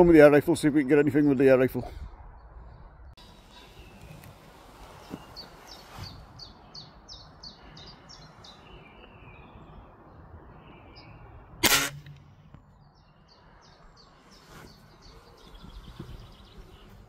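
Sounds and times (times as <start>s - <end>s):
bird chirping: 2.4s - 11.6s, 12.4s - 17.0s
air rifle shot: 11.6s - 12.2s.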